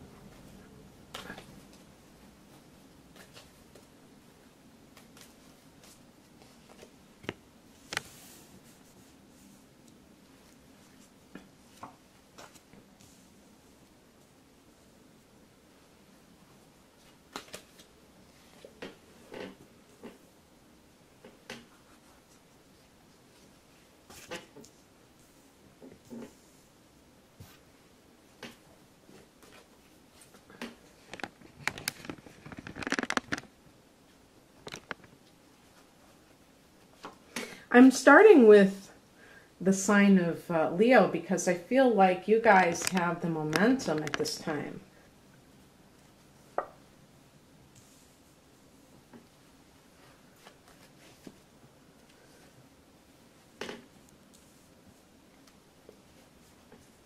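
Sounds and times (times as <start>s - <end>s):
cards being shuffled by hand: 4.9s - 7.0s, 17.0s - 19.0s, 29.1s - 33.5s, 50.3s - 51.5s.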